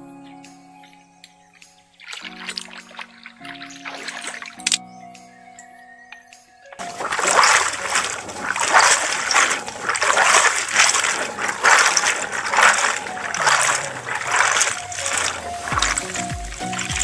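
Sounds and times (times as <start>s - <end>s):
stream water splashing: 2.0s - 4.8s, 6.8s - 17.0s.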